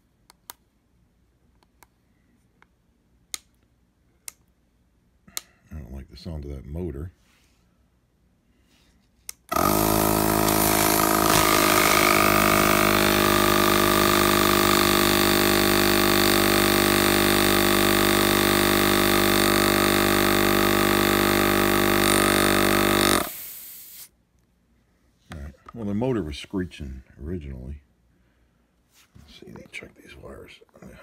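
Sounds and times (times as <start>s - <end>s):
air compressor running: 9.5s - 24.1s.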